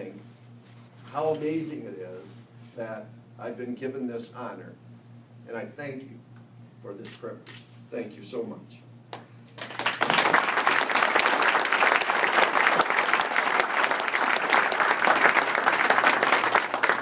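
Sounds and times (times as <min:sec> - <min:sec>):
audience applauding: 0:09.6 - 0:17.0.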